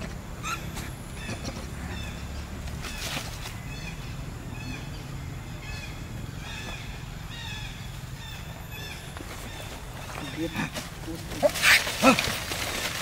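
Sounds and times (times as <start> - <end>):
high chirping calls: 0.3 - 10.7.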